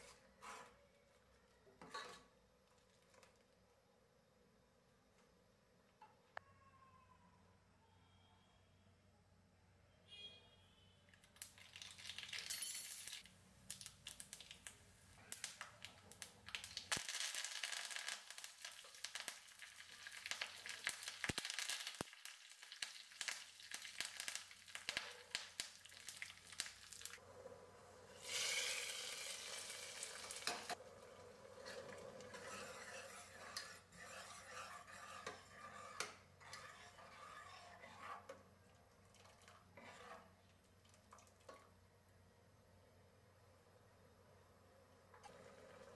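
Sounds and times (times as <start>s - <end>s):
mustard seeds popping in hot oil: 11.2s - 12.6s, 13.2s - 27.2s
leaves and chillies sizzling: 11.3s - 27.2s, 28.1s - 32.3s
metal spoon stirring: 31.6s - 40.6s.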